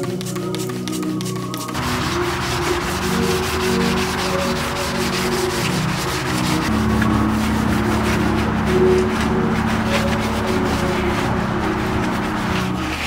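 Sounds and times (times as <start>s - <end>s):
background music: 0.0s - 13.0s
cloth scrubbing metal: 0.0s - 13.0s.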